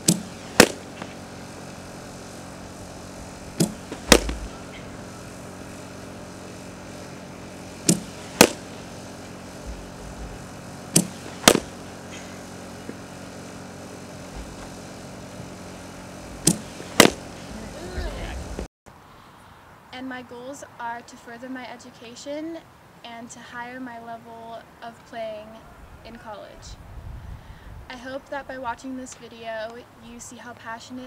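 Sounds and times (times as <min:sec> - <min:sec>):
bat hitting ball: 0:00.0 - 0:01.2, 0:03.6 - 0:05.0, 0:07.9 - 0:08.8, 0:11.0 - 0:13.1, 0:16.4 - 0:17.4
low hum: 0:00.0 - 0:18.7.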